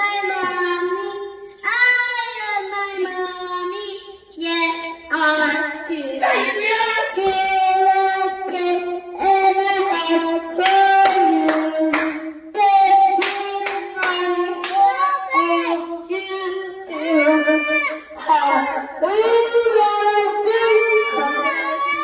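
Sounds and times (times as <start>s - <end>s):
children singing: 0.0s - 22.0s
hand claps: 10.6s - 12.2s, 13.2s - 14.9s.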